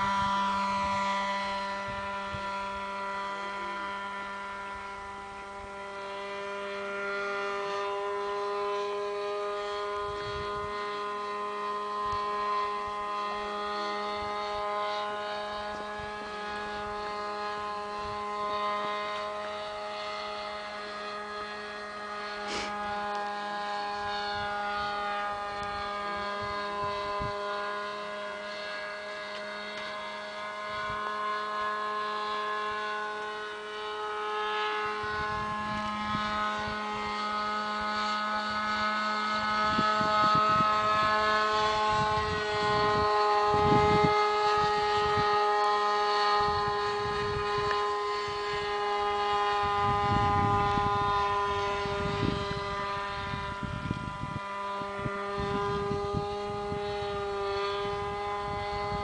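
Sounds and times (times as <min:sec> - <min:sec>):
wind gusts on microphone: 0:00.0 - 0:03.2, 0:09.4 - 0:14.6, 0:21.8 - 0:29.0, 0:34.7 - 0:45.5, 0:46.2 - 0:59.0
model airplane motor droning: 0:00.0 - 0:59.0.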